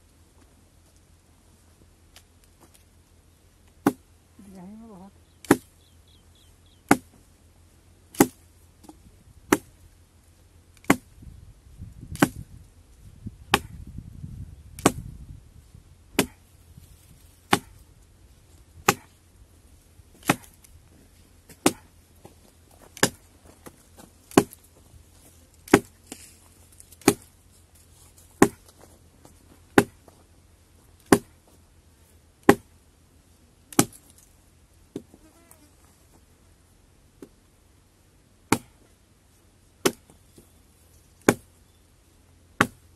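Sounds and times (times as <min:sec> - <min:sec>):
axe chopping wood: 0:03.8 - 0:04.0, 0:05.4 - 0:05.7, 0:06.9 - 0:07.2, 0:08.1 - 0:09.8, 0:10.8 - 0:11.1, 0:12.1 - 0:12.5, 0:13.5 - 0:13.8, 0:14.8 - 0:15.1, 0:16.2 - 0:16.4, 0:17.5 - 0:17.8, 0:18.8 - 0:19.2, 0:20.2 - 0:20.6, 0:21.5 - 0:21.9, 0:22.9 - 0:23.3, 0:24.3 - 0:24.6, 0:25.7 - 0:26.2, 0:27.0 - 0:27.3, 0:28.4 - 0:28.7, 0:29.8 - 0:30.0, 0:31.0 - 0:31.4, 0:32.4 - 0:32.7, 0:33.7 - 0:34.1, 0:38.5 - 0:38.9, 0:39.8 - 0:40.2, 0:41.2 - 0:41.5, 0:42.6 - 0:42.8.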